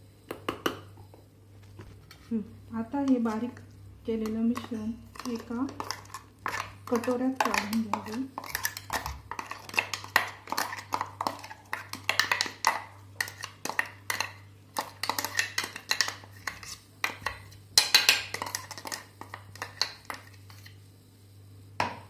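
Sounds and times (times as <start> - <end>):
faint low hum: 0.0 - 22.0
spoon scraping steel jar: 4.6 - 12.6, 13.2 - 20.7.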